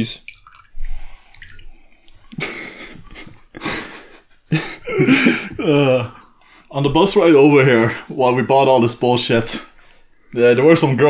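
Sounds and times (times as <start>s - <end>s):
person groaning: 5.6s - 6.2s.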